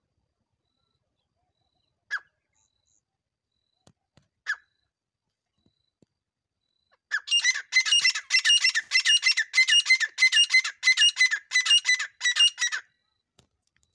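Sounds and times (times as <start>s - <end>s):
partridge calling: 7.1s - 12.9s.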